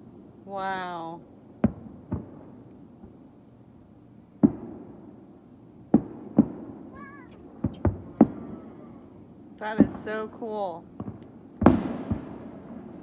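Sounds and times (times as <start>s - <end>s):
fireworks bursting: 1.5s - 3.2s, 4.4s - 5.2s, 5.9s - 13.0s.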